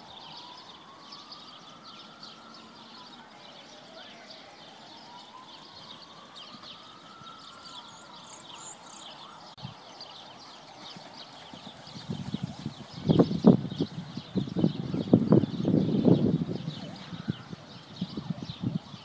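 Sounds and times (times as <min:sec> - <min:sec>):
horse hoofbeats on sand: 0:10.4 - 0:13.8.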